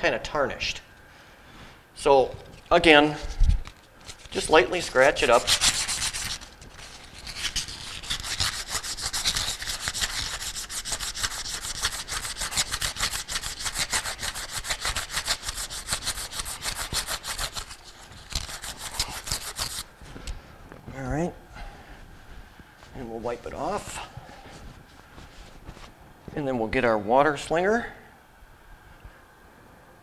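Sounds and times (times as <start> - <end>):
emery cloth rasping on metal: 5.3 - 19.8.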